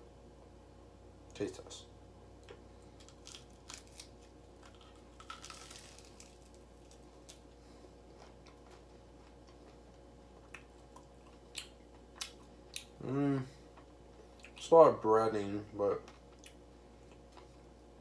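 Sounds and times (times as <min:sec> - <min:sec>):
biting and chewing food: 0:02.5 - 0:13.0.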